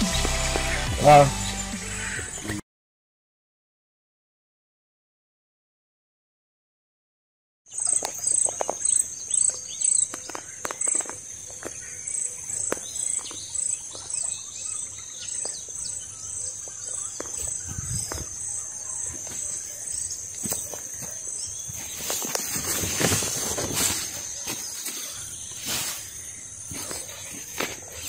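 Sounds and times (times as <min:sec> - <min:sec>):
bird chirps: 0:07.7 - 0:28.0
cricket chirping: 0:07.7 - 0:28.0.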